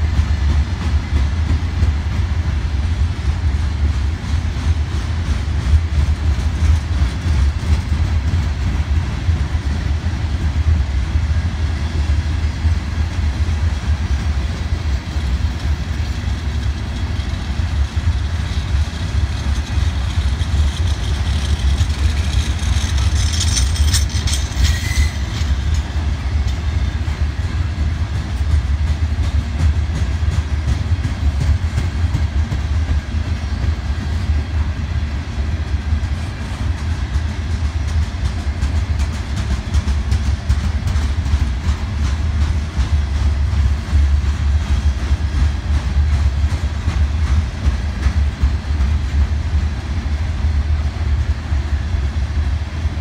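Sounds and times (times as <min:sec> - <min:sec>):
train wheels rumbling on rails: 0:00.0 - 0:53.0
high-pitched wheel squeal: 0:23.2 - 0:25.5.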